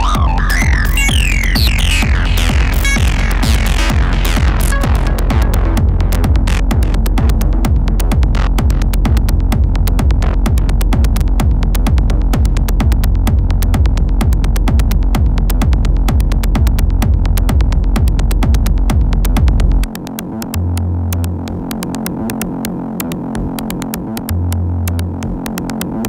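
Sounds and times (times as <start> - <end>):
industrial techno music: 0.0 - 26.0.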